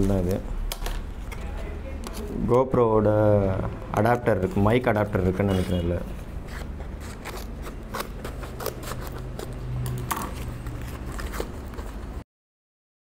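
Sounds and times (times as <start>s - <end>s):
packaging rustling: 5.5s - 12.2s
scissors snipping cardboard: 6.5s - 11.9s.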